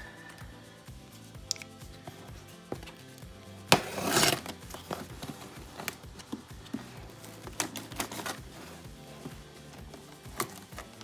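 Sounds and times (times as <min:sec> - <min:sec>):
packing tape ripping: 0:03.7 - 0:04.9.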